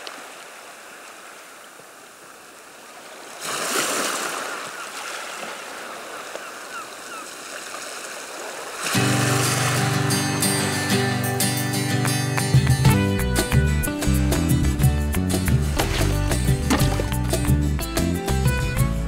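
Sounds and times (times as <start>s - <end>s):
sea waves washing in: 0.0s - 11.9s.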